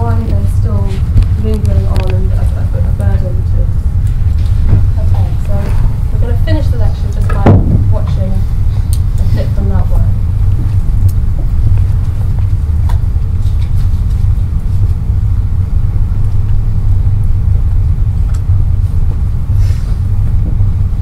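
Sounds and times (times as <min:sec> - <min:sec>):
loud low rumble: 0:00.0 - 0:21.0.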